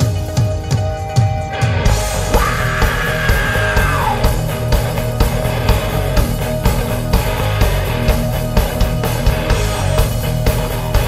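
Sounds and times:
heavy metal band playing: 0.0 - 11.0
long held high vocal note: 2.3 - 4.3.

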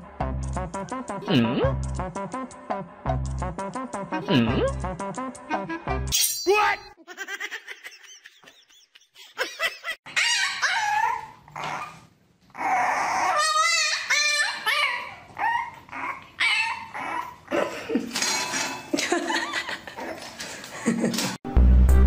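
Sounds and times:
puppy whining and yipping: 10.1 - 17.5.

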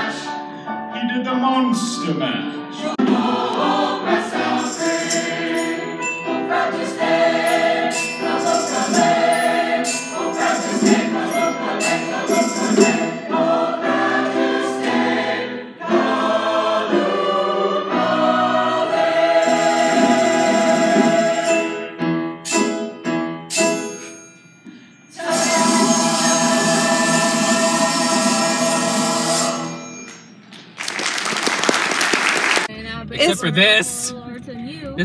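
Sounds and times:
young choir singing: 2.7 - 21.7, 25.1 - 29.8
instrumental accompaniment: 2.9 - 30.6.

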